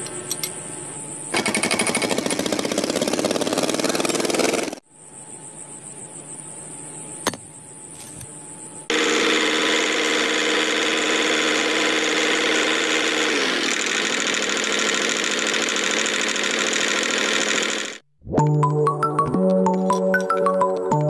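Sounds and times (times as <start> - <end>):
toy tractor motor and gears running: 1.3 - 4.8, 8.9 - 18.0.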